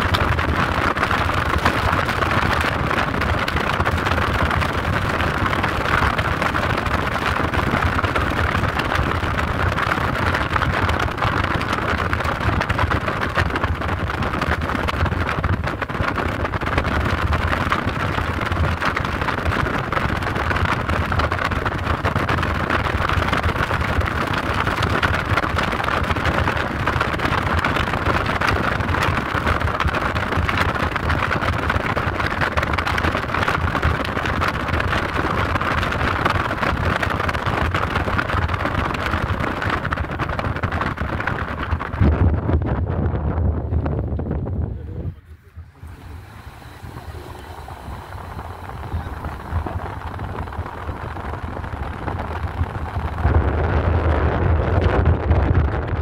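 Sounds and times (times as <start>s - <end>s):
vehicle engine and road noise: 0.0s - 56.0s
rush of air: 34.4s - 56.0s.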